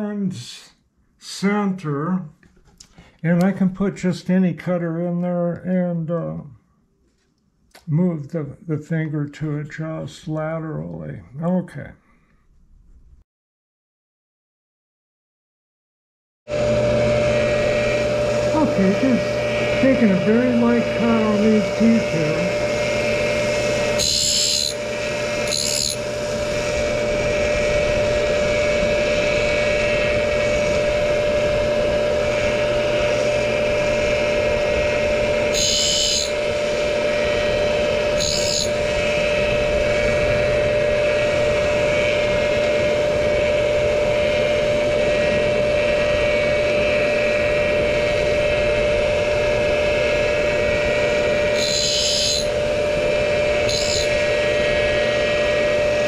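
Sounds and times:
grinder whining: 16.5s - 56.0s
high hissing bursts: 23.5s - 26.2s, 35.5s - 37.0s, 51.5s - 52.6s, 53.6s - 54.2s.

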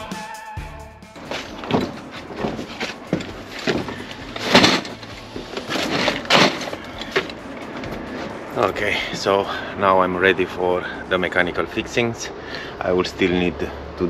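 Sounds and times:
cardboard box handled: 1.2s - 8.4s
footsteps on wooden boards: 1.2s - 8.5s.

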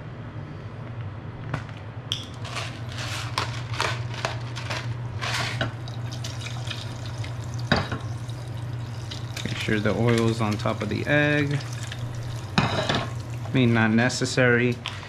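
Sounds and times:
low hum: 0.0s - 15.0s
pepper grinder crunching: 2.2s - 6.8s
egg frying in oil: 5.4s - 14.3s.

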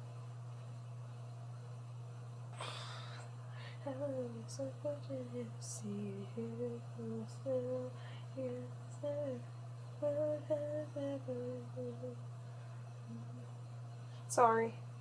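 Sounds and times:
steady low hum: 0.0s - 15.0s
woman humming a tune: 10.0s - 12.2s, 13.0s - 13.6s.

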